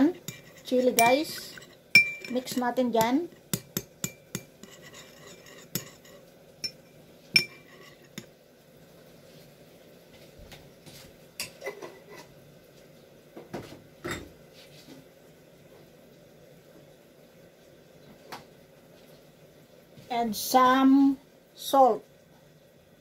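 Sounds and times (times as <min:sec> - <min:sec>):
metal spoon clinking against glass bowl: 0:00.2 - 0:08.3.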